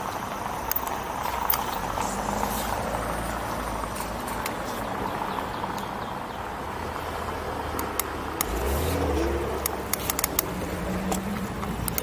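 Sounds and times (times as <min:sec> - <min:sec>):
bike clicks and rattles: 0:00.0 - 0:04.9, 0:07.7 - 0:12.0.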